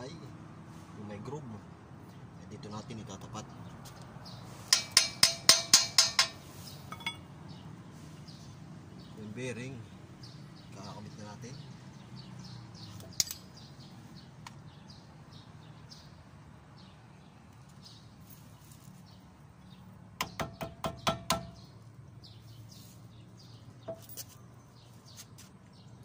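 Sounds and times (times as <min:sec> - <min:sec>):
birds chirping faintly: 0:01.0 - 0:26.0
hammer tapping metal: 0:04.7 - 0:07.2, 0:20.2 - 0:21.6.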